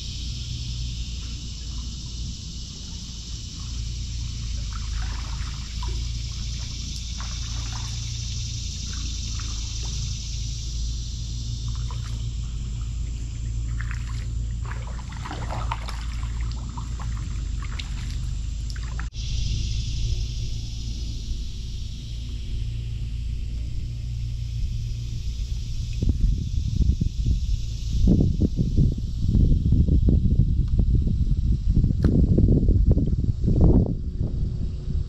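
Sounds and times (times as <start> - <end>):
steady high hiss: 0.0 - 29.8
steady low rumble: 0.0 - 35.0
paddle splashing in water: 2.7 - 10.5, 11.6 - 19.1.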